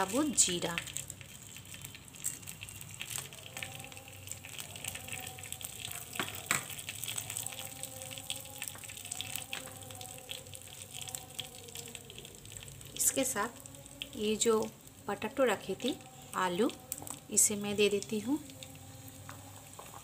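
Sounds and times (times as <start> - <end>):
spices sizzling in hot oil: 0.0 - 20.0.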